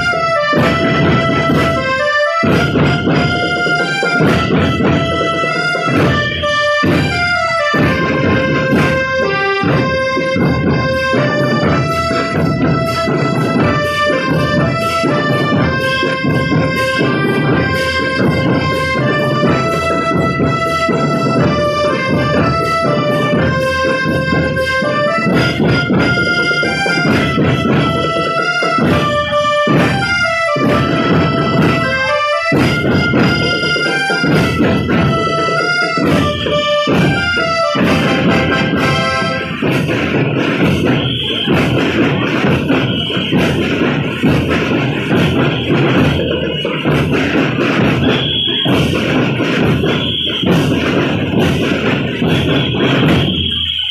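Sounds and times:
reedy wind melody: 0.0s - 41.8s
snare and bass drums: 0.0s - 53.9s.

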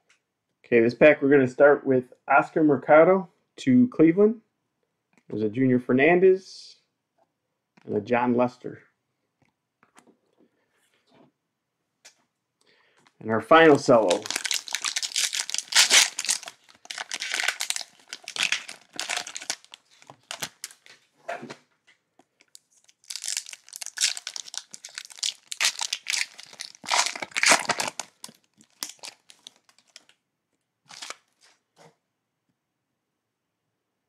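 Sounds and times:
cellophane wrapper crinkling and tearing: 13.6s - 21.0s, 22.2s - 30.2s, 30.9s - 31.6s.

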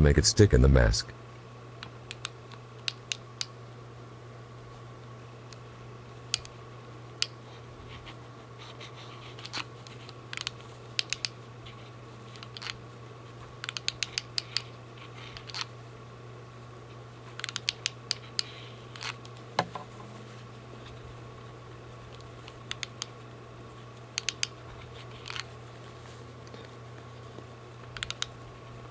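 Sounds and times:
steady low hum: 0.0s - 28.9s
small clicks and scratches: 7.2s - 15.7s, 17.3s - 19.4s, 22.1s - 28.4s.

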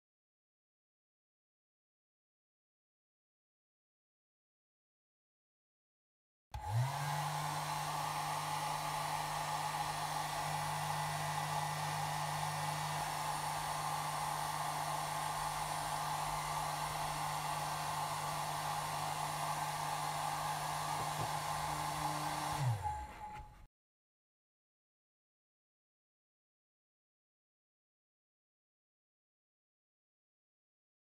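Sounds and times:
hair dryer blowing: 6.6s - 23.7s.

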